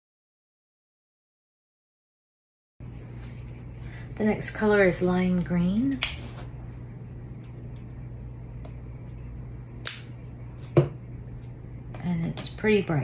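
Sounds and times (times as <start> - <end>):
steady low hum: 2.8 - 13.0.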